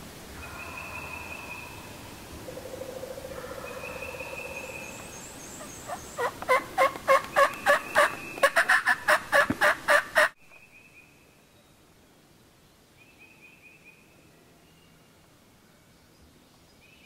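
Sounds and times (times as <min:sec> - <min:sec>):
turkey calling: 0:05.6 - 0:10.4.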